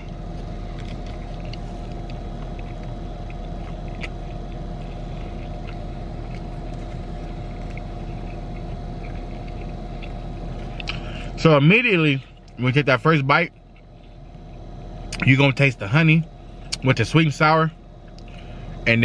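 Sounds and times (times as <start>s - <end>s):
air conditioning hum: 0.0s - 19.0s
car engine idling hum: 0.0s - 19.0s
chewing clicks: 0.3s - 11.0s, 13.5s - 15.3s.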